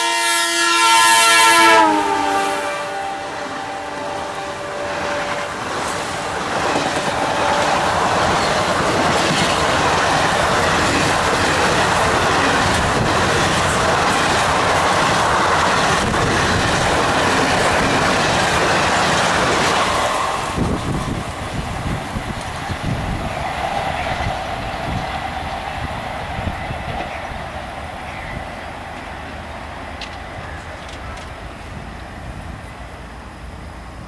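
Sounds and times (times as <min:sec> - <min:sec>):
locomotive horn: 0:00.0 - 0:08.8
train wheels clattering on rails: 0:03.5 - 0:32.8.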